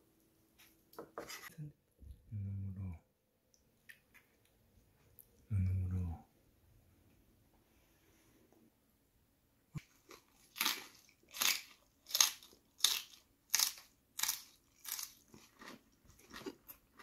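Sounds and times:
person chewing crunchy leaves: 9.8s - 17.0s.

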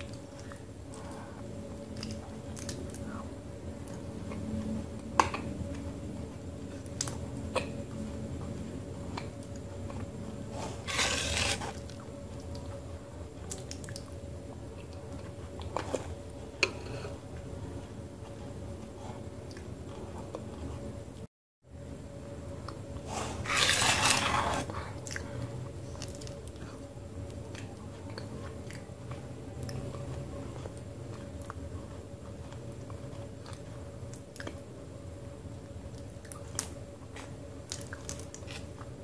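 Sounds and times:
spoon scooping wet clay paste: 10.6s - 11.8s.

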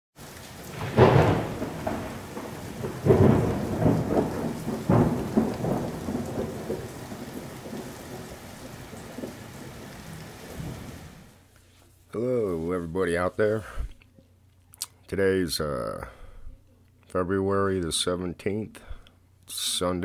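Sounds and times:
thunder cracks: 0.2s - 11.3s
steady rain: 0.2s - 11.5s.

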